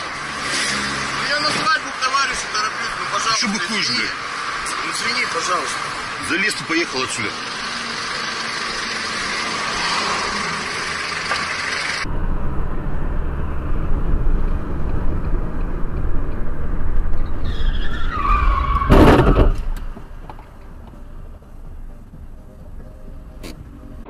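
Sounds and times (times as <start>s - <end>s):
road noise inside car: 0.0s - 24.0s
tyre squeal: 17.2s - 19.8s
loud bang: 18.7s - 19.7s.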